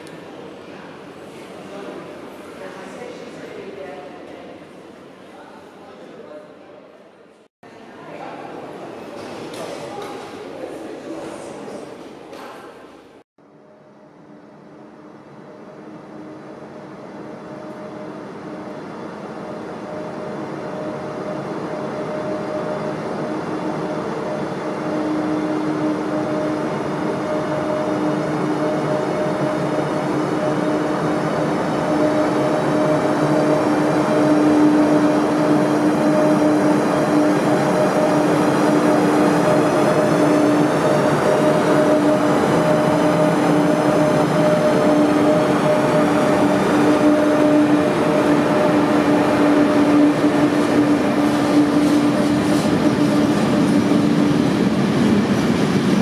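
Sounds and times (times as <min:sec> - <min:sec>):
electric locomotive approaching: 0:12.9 - 0:56.0.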